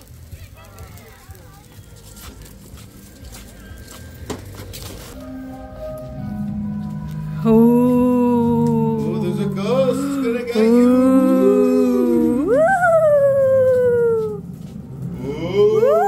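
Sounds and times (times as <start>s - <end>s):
ghostly wail: 5.6s - 16.0s
wolf-like howl: 7.4s - 14.5s, 15.2s - 16.0s.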